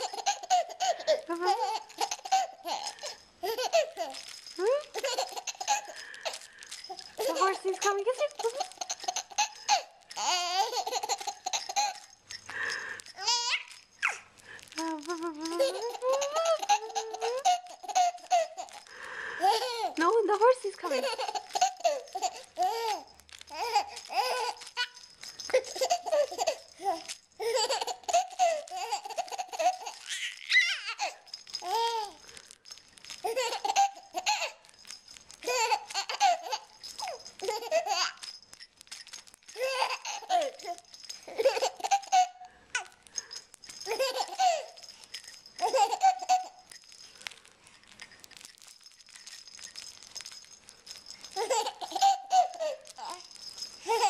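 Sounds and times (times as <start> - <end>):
baby laughing: 0.0 - 4.2, 4.8 - 12.0, 13.2 - 14.2, 15.4 - 20.0, 20.9 - 32.2, 33.2 - 34.6, 35.4 - 38.2, 39.6 - 42.4, 43.8 - 44.8, 45.6 - 46.7, 51.4 - 53.2.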